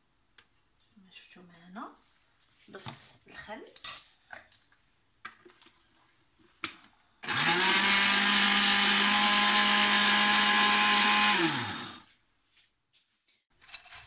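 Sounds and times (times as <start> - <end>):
blender motor mixing liquid: 7.2 - 12.1.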